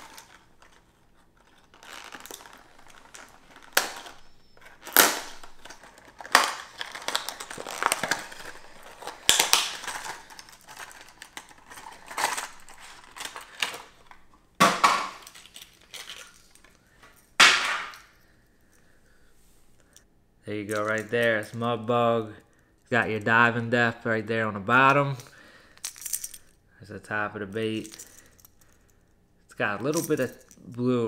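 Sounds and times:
plastic packaging crinkling: 0:00.0 - 0:18.1
plastic snapping: 0:01.5 - 0:16.7.

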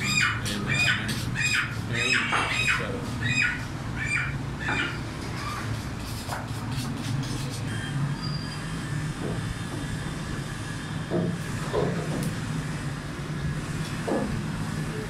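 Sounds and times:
birds squawking: 0:00.0 - 0:05.7
steady low hum: 0:00.0 - 0:15.0.

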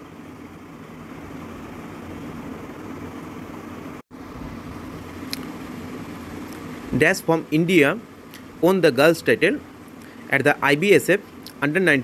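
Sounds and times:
low hum and hiss of room noise: 0:00.0 - 0:12.0.

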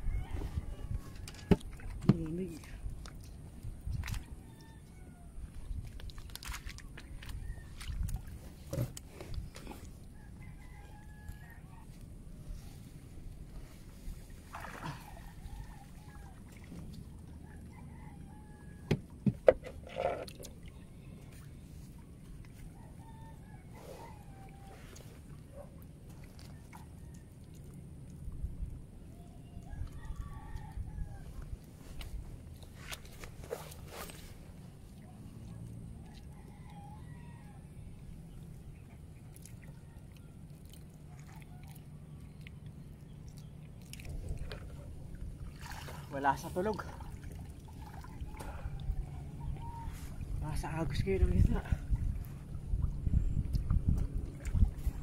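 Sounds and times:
rooster crowing: 0:10.4 - 0:11.9, 0:17.4 - 0:18.9, 0:36.1 - 0:37.7
steady low rumble: 0:46.9 - 0:55.0
faint bird calls: 0:48.0 - 0:50.4.

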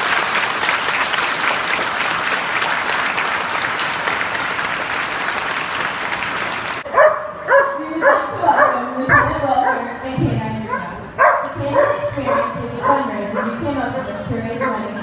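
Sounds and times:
crowd applauding: 0:00.0 - 0:06.9
dog yipping and whining: 0:10.7 - 0:14.8.

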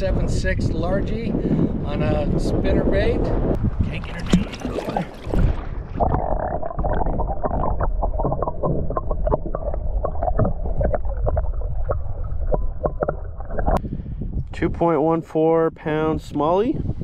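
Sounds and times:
low underwater rumble: 0:03.5 - 0:14.5.

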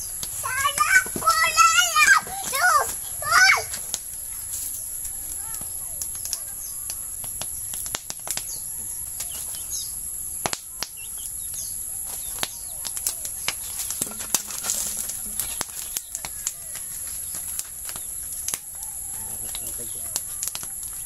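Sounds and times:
fire crackling and popping: 0:00.0 - 0:21.0
high insect drone: 0:00.0 - 0:21.0
faint bird chirps: 0:04.1 - 0:07.8, 0:08.4 - 0:14.0.

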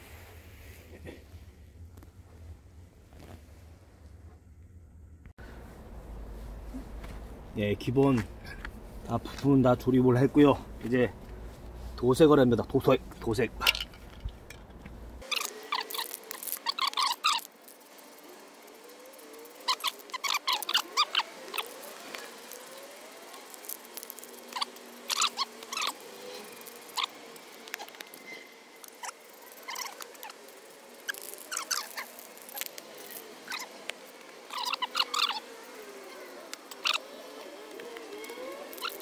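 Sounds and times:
spray can ball rattling: 0:13.6 - 0:18.2.

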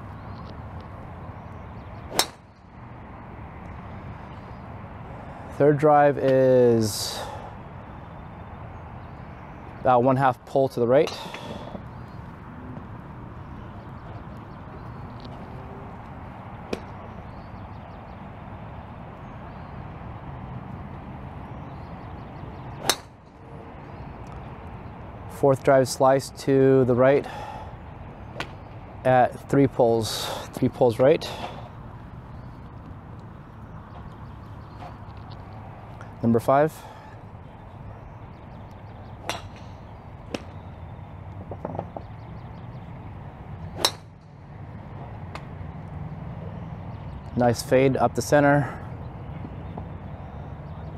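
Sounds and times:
golf club hitting ball: 0:02.1 - 0:02.4, 0:22.8 - 0:23.2, 0:39.2 - 0:40.6, 0:43.8 - 0:44.2
golf driver striking ball: 0:02.1 - 0:02.4, 0:22.8 - 0:23.2, 0:43.8 - 0:44.1.

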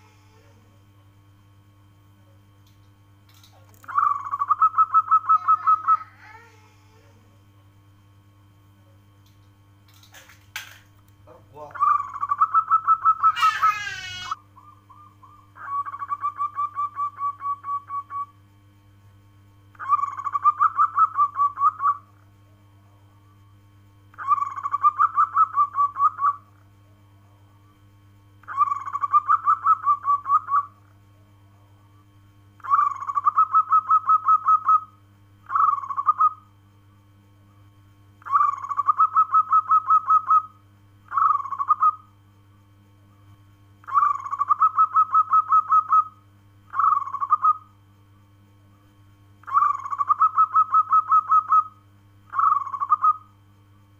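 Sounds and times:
dove cooing: 0:03.6 - 0:07.1, 0:11.6 - 0:18.3, 0:19.8 - 0:22.1, 0:24.1 - 0:26.4, 0:28.4 - 0:30.7, 0:32.6 - 0:34.9, 0:35.5 - 0:36.4, 0:38.2 - 0:40.5, 0:41.1 - 0:42.1, 0:43.8 - 0:47.7, 0:49.4 - 0:51.7, 0:52.3 - 0:53.3.

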